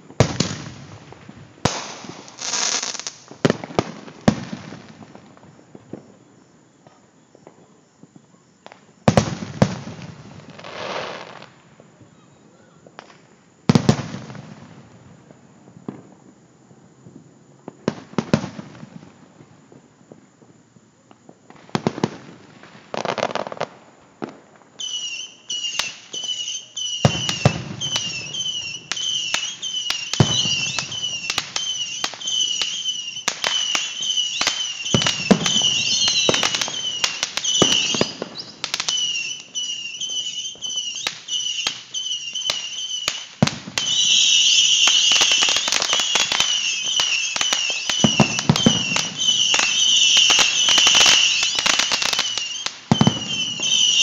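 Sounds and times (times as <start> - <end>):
firework crackling: 0.0 - 6.1, 21.3 - 54.0
firework shells booming: 27.0 - 39.3, 42.4 - 54.0.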